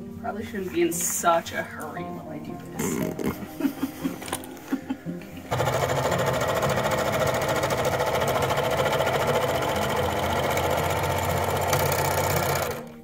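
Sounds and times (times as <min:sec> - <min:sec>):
overlock sewing machine running: 0:05.5 - 0:13.0.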